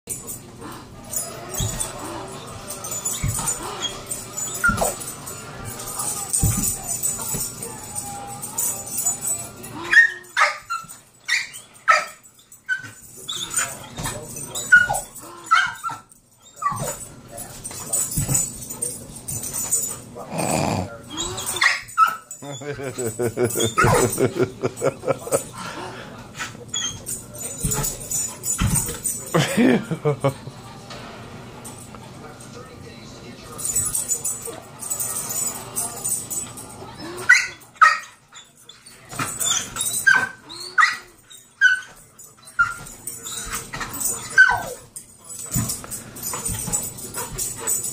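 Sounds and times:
dog whining: 0.6 - 5.0, 5.7 - 13.8, 20.3 - 22.7, 36.9 - 44.8
dog yelping: 9.8 - 13.4, 14.7 - 16.9, 44.4 - 44.8.

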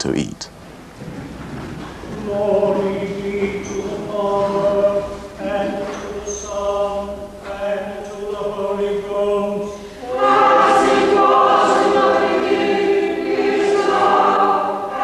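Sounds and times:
congregation singing a hymn: 2.0 - 15.0.

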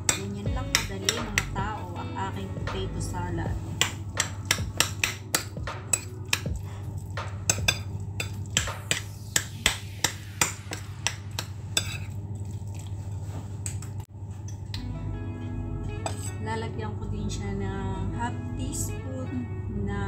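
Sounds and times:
metal spoon scraping ceramic bowl: 10.7 - 12.2, 16.0 - 16.4.

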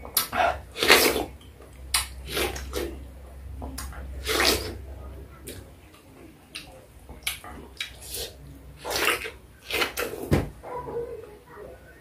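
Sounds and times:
wet biting and slurping pineapple: 4.2 - 4.8.

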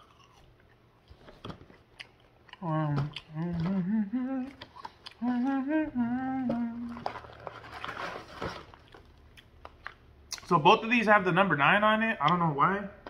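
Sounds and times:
man humming a tune: 2.6 - 7.2
cardboard box rustling: 7.0 - 8.8.

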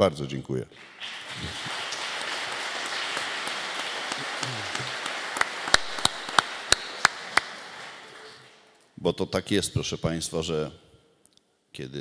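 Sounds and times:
single claps close to microphone: 0.8 - 8.6
audience applauding: 0.8 - 8.8.

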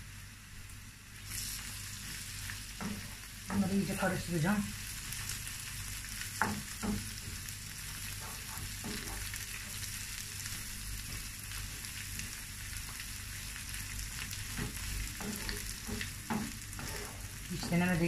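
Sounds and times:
vegetables sizzling in a frying pan: 0.0 - 18.0
wooden spoon knocking a pan: 6.4 - 7.4, 8.2 - 9.3, 14.5 - 16.6.

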